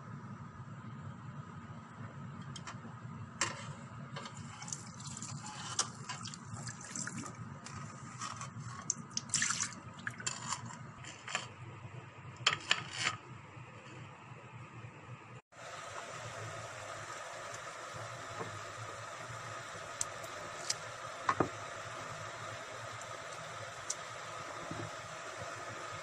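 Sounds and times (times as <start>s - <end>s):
water splashing in strainer: 4.5s - 7.4s, 9.1s - 10.3s.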